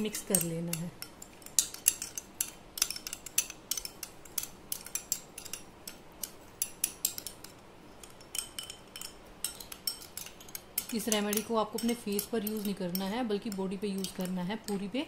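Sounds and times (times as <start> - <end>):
metal spoon clinking glass bowl: 0.0 - 14.9.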